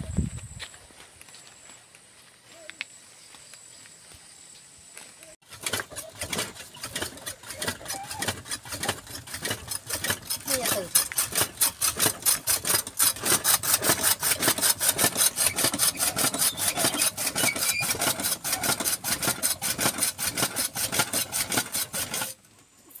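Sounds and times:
chaff cutter blade strokes: 0:05.5 - 0:22.4.

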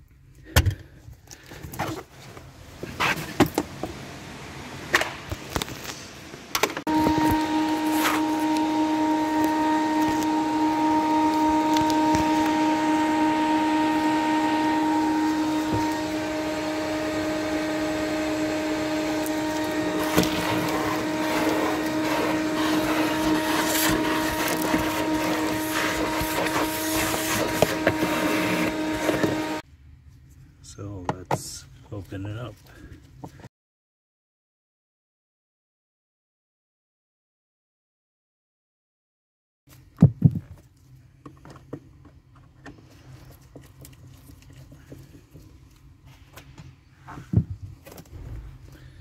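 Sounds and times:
vacuum cleaner whining: 0:06.3 - 0:29.6
debris crackling up vacuum nozzle: 0:18.7 - 0:29.6.

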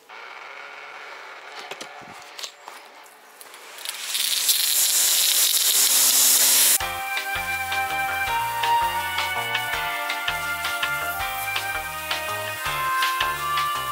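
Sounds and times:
pressure washer jet spraying: 0:03.5 - 0:13.9
background music with a beat: 0:06.8 - 0:13.9.

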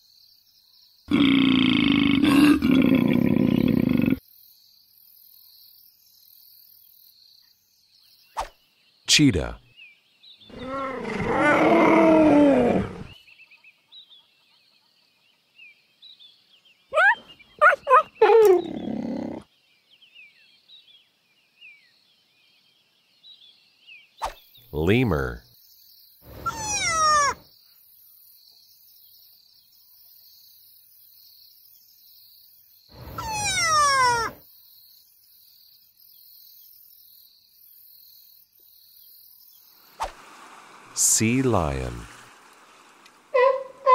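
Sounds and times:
cheetah calling: 0:10.5 - 0:13.2, 0:16.9 - 0:19.4, 0:26.3 - 0:27.4, 0:33.0 - 0:34.4, 0:43.3 - 0:43.9
faint high twittering: 0:24.2 - 0:40.1.

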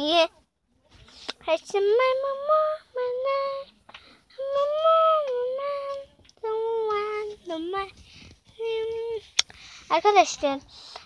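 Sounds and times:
girl singing without words: 0:01.4 - 0:09.4.

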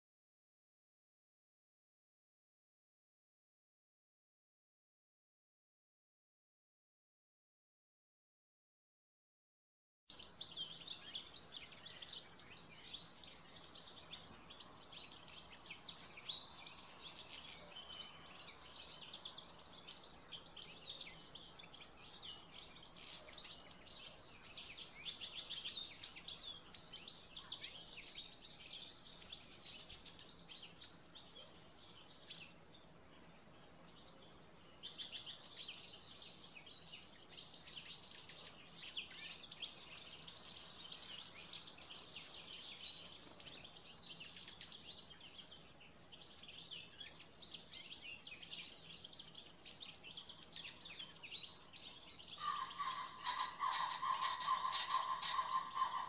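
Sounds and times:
songbirds chirping and twittering: 0:10.1 - 0:56.0
loud rapid bird trills: 0:52.4 - 0:56.0.

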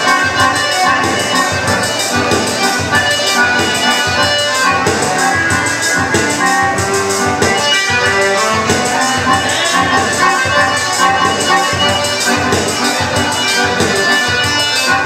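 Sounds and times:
accordion dance music: 0:00.0 - 0:15.0.

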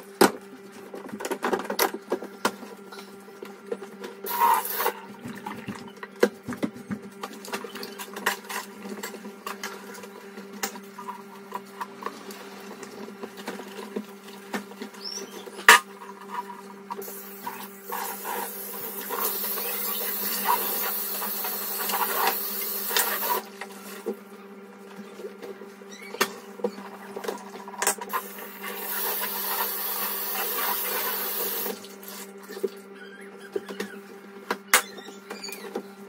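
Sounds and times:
tap water running: 0:17.9 - 0:23.4, 0:28.1 - 0:32.3.

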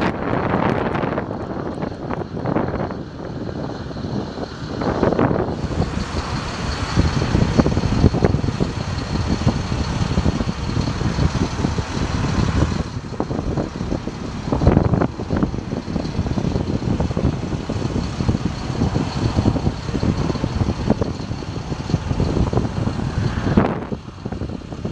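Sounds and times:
truck engine idling: 0:00.0 - 0:24.9
wind on microphone: 0:00.0 - 0:24.9.

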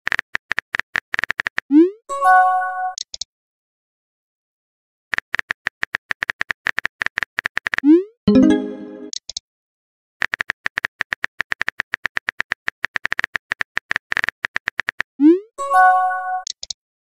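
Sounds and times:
chime: 0:08.3 - 0:09.1.

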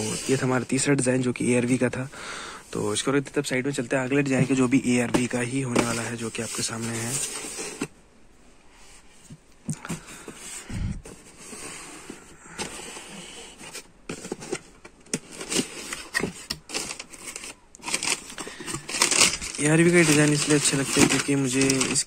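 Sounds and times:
cardboard boxes sliding and scraping: 0:05.7 - 0:07.9, 0:08.8 - 0:22.0
paper wrapping rustling: 0:09.9 - 0:22.0.

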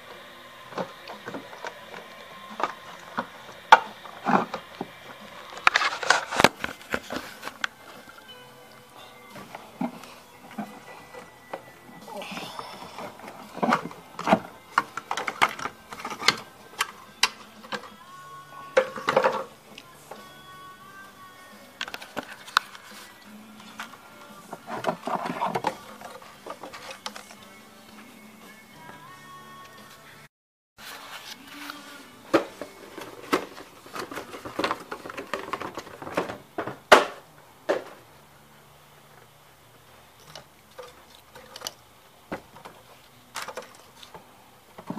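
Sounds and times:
plastic parts clicking and rattling: 0:12.9 - 0:17.9, 0:18.8 - 0:19.5, 0:21.8 - 0:27.4, 0:32.3 - 0:38.0, 0:40.2 - 0:44.9.

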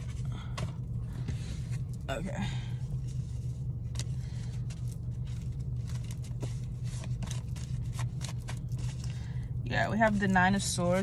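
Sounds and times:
car engine humming: 0:00.0 - 0:11.0
cards shuffling: 0:03.2 - 0:09.2.

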